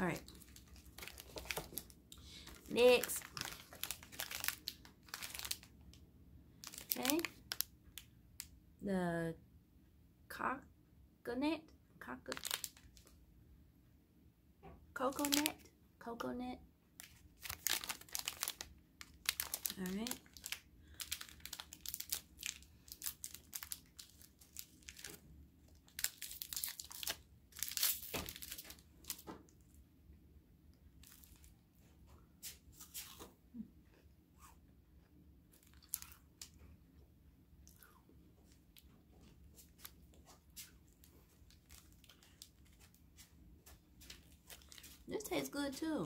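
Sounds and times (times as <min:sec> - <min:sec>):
plastic wrapper crinkling: 0:00.0 - 0:05.9, 0:06.6 - 0:08.5, 0:12.3 - 0:13.1, 0:15.1 - 0:15.6, 0:17.0 - 0:29.3, 0:31.0 - 0:31.5, 0:35.6 - 0:36.6, 0:38.7 - 0:45.1.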